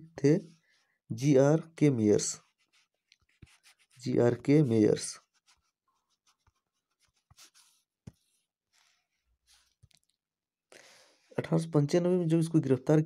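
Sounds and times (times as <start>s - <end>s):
pen scratching while writing: 2.4s - 8.5s.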